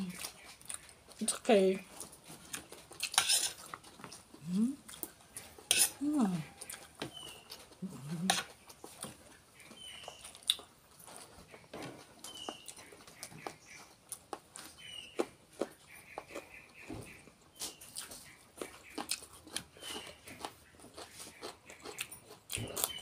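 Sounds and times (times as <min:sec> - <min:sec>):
chewing and crunching vegetables: 0:00.0 - 0:23.0
person humming: 0:04.4 - 0:04.8, 0:06.0 - 0:06.4, 0:07.8 - 0:08.4.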